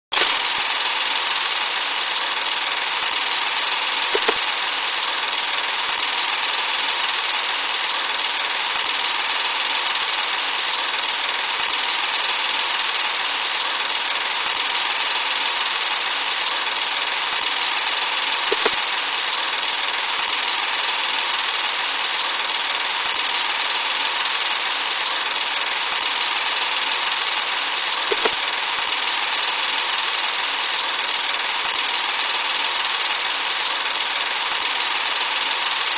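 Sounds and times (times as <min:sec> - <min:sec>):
sharp film pops: 0:04.2 - 0:04.5, 0:18.5 - 0:18.8.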